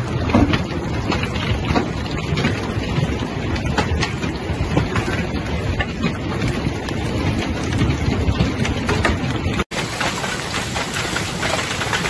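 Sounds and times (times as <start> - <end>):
wind: 0.0 - 12.0
heavy hail on water and stone: 0.1 - 12.0.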